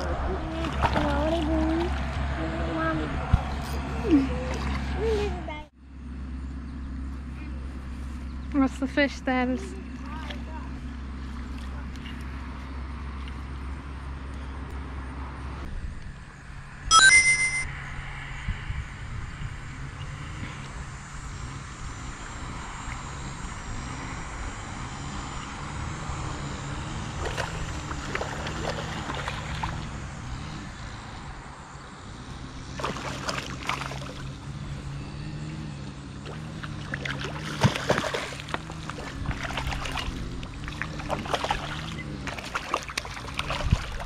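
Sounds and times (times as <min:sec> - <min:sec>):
fish thrashing and splashing: 0:00.0 - 0:02.3, 0:27.0 - 0:29.9, 0:32.7 - 0:34.4, 0:36.2 - 0:44.0
steady low hum: 0:00.0 - 0:44.0.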